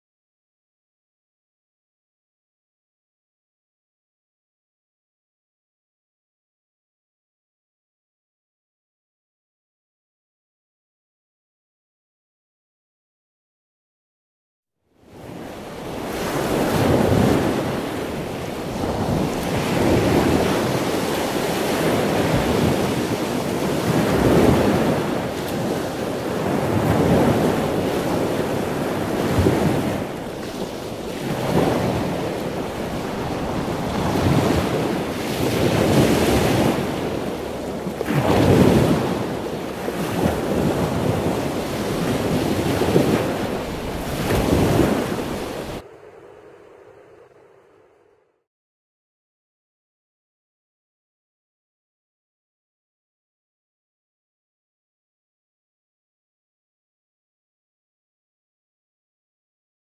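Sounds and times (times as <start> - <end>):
strong wind: 15.0 - 48.0
waves surging and breaking: 15.0 - 48.2.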